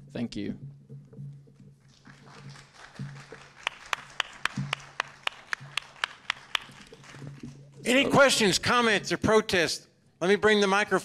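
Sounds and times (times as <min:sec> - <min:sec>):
loud individual claps: 0:01.9 - 0:07.6
audience applauding: 0:01.9 - 0:08.1.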